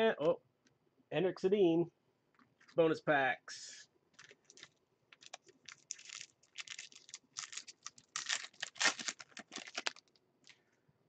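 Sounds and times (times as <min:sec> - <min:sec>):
wrapper crinkling and tearing: 0:04.2 - 0:10.2.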